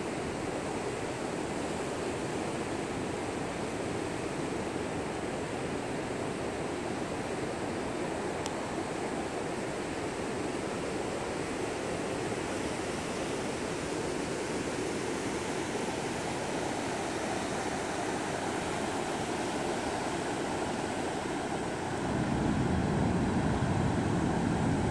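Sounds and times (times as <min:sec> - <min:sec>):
ocean surf breaking: 0:15.3 - 0:24.9
low surf rumble: 0:17.0 - 0:24.9.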